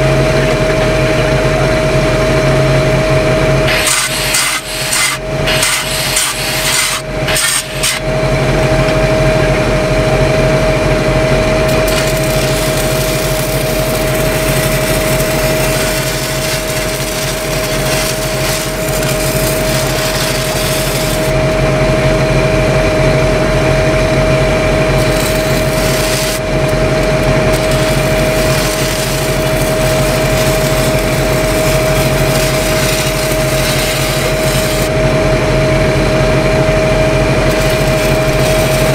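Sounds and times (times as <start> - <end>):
steady tone: 0.0 - 38.9
welding machine engine hum: 0.0 - 38.9
welding arc crackling and hissing: 3.7 - 8.1, 11.6 - 21.7, 24.7 - 35.2, 36.3 - 38.9.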